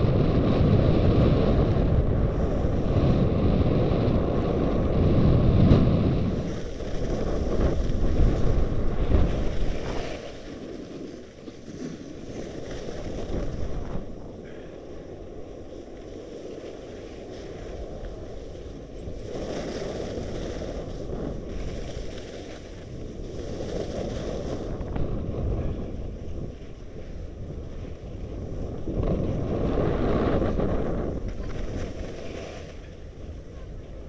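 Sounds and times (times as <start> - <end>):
wind rushing over microphone: 0.0 - 34.0.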